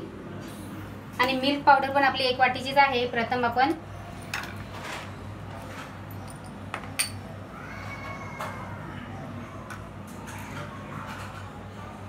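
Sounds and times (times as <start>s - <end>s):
kitchenware clinking: 4.2s - 7.3s
faint high cry: 7.5s - 9.7s.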